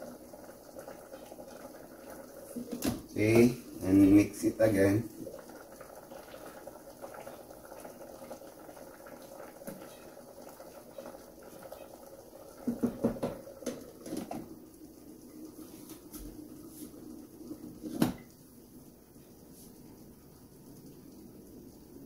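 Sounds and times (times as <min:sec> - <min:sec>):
pot simmering: 0:00.0 - 0:22.0.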